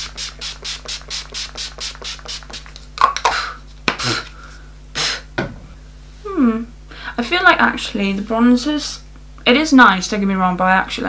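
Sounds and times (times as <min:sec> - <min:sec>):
spray bottle pumping: 0:00.0 - 0:03.4.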